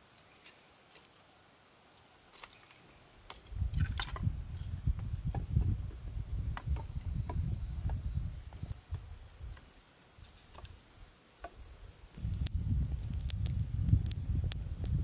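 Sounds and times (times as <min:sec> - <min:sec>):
insects calling: 0:00.0 - 0:15.0
low rumbling noise: 0:12.2 - 0:15.0.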